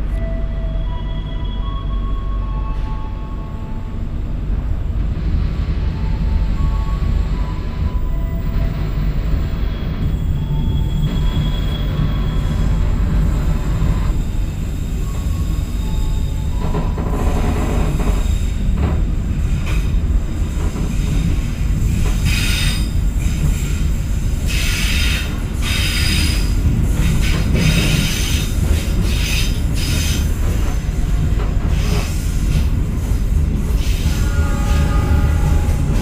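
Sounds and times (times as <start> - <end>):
train coaches rumbling on rails: 0.0 - 36.0
train wheel screech: 7.4 - 18.6, 22.1 - 23.7, 24.5 - 31.1, 31.7 - 36.0.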